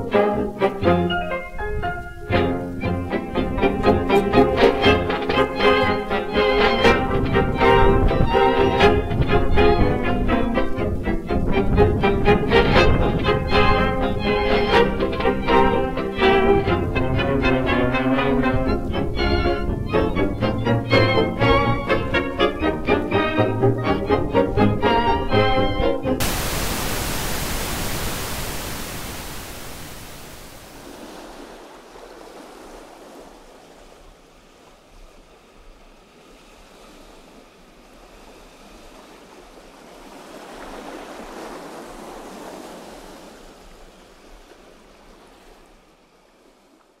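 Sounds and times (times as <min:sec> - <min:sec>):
pulsing string music: 0:00.0 - 0:26.2
loud rushing noise: 0:26.2 - 0:30.8.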